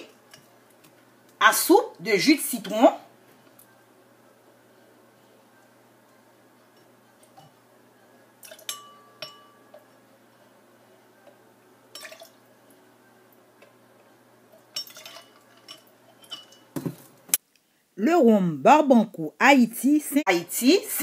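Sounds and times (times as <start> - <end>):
spoon clinking against glass: 8.5 - 9.8, 14.7 - 16.7.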